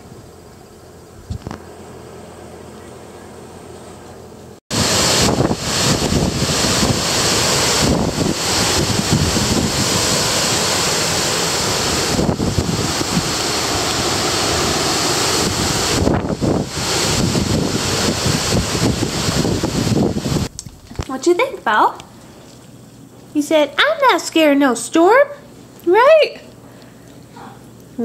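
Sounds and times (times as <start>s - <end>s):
wind buffeting microphone: 4.7s - 21.2s
gusty wind tossing leaves: 4.7s - 21.6s.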